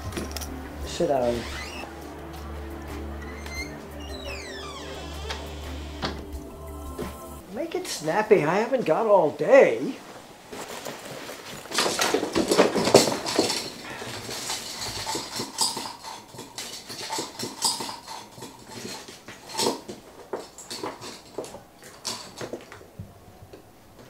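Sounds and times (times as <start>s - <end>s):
clothing rustling: 7.0s - 15.4s
pens and pencils clattering: 10.5s - 24.0s.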